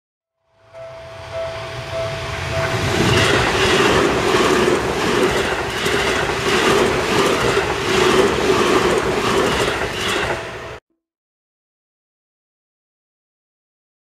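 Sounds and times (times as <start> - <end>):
train wheels rumbling on rails: 0.9 - 10.8
wheels clacking over rail joints: 2.5 - 10.8.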